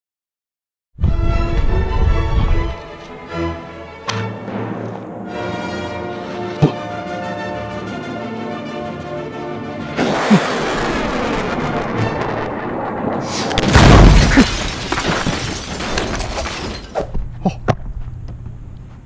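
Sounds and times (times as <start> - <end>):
music: 1.0 - 12.5
firework boom: 10.0 - 14.9
firework crackle and pops: 10.0 - 15.0
firework rocket launch hiss: 13.2 - 13.7.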